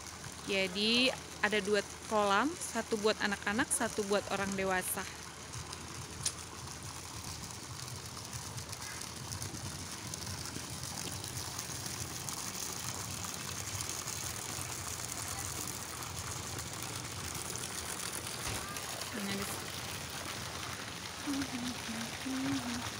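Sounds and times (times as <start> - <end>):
water splashing into pool: 4.6 - 22.9.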